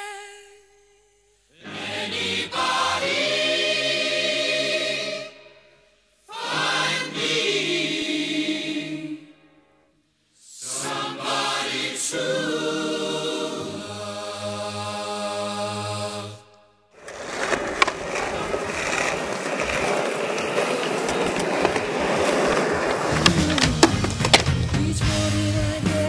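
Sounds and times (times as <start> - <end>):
choir singing held phrases: 1.5 - 9.6, 10.4 - 16.6.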